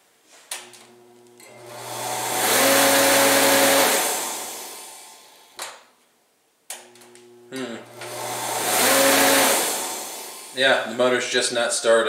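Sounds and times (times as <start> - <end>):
electrical hum: 0.5 - 5.4, 6.7 - 11.3
electric motor whining: 0.6 - 5.6, 6.8 - 10.8.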